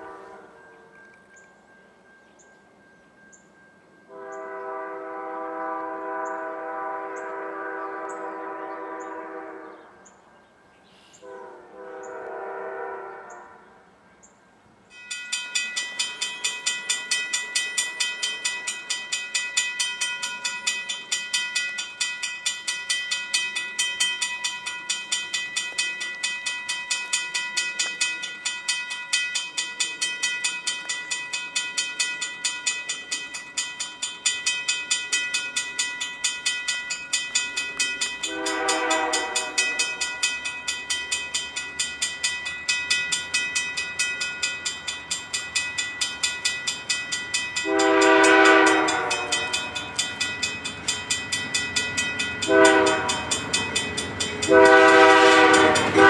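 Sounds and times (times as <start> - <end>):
distant train horn: 0.0 - 1.3, 4.1 - 10.2, 11.0 - 14.2, 38.2 - 40.2, 47.6 - 50.6, 52.4 - 56.0
railroad crossing bell ringing: 0.0 - 56.0.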